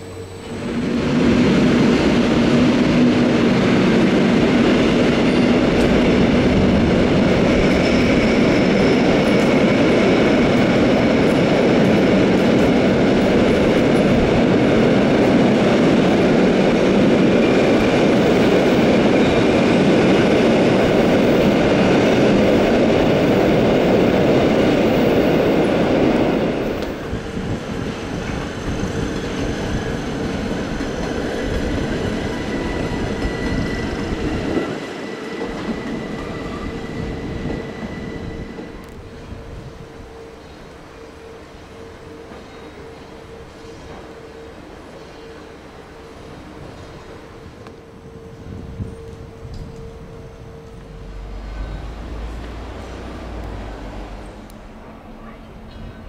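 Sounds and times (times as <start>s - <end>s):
train hum: 0.0s - 56.0s
train wheels rumbling on rails: 0.0s - 56.0s
faint high squeal: 30.9s - 52.9s.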